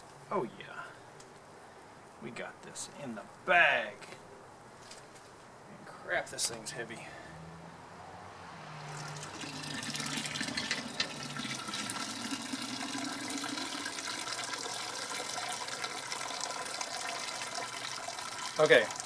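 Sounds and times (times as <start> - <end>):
liquid pouring and dripping into kettle: 8.9 - 19.0.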